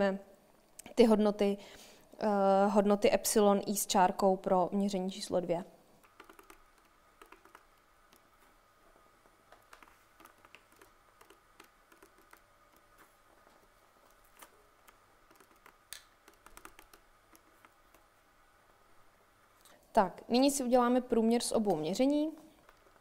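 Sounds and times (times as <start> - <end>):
calculator keys clicking: 6.0 - 8.2, 9.6 - 12.9, 14.1 - 18.0.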